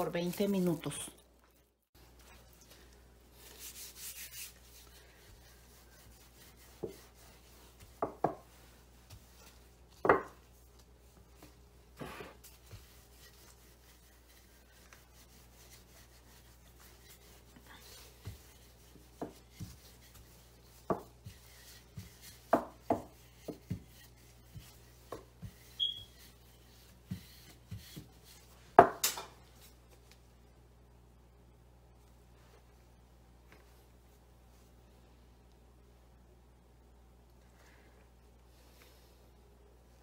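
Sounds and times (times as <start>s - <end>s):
rolling pin rubbing on dough: 3.3s - 28.6s.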